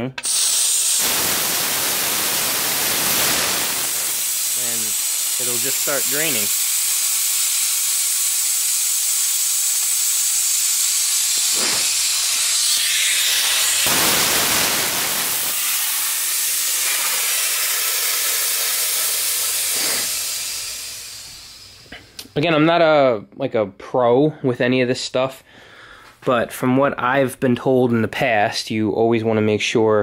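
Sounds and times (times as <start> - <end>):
compressed air hissing: 0.2 - 22.2.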